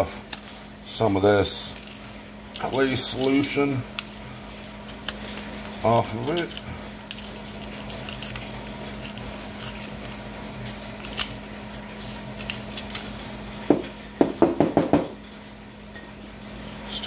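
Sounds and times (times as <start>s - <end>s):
steady low hum: 0.0s - 17.0s
sharp knocks: 13.7s - 15.2s.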